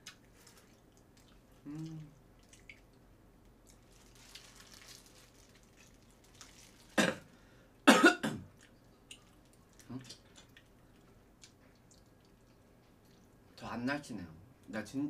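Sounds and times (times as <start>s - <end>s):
wet chewing sounds: 0.0s - 7.0s, 8.5s - 13.5s
person humming: 1.6s - 2.2s
loud cough: 7.0s - 7.2s, 7.9s - 8.4s.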